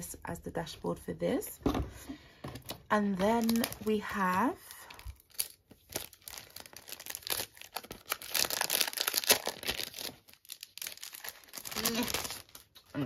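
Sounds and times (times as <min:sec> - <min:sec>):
plastic wrapping crinkling: 0:02.6 - 0:13.0.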